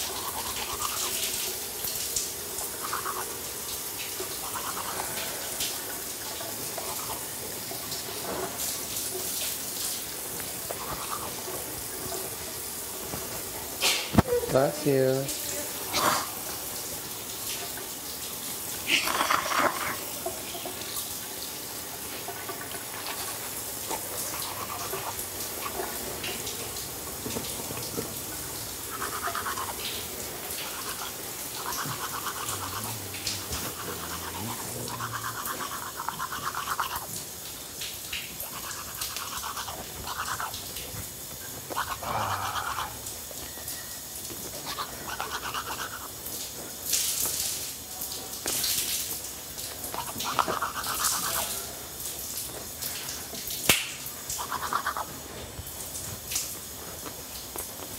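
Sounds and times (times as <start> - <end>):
toothbrush scrubbing teeth: 0.0 - 8.7, 10.4 - 12.4, 18.8 - 21.1, 21.9 - 43.6, 44.4 - 46.3, 49.7 - 51.8, 54.4 - 55.4.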